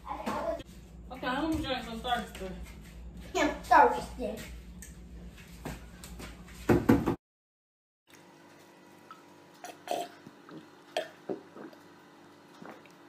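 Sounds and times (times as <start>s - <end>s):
person gulping water: 9.1s - 13.0s.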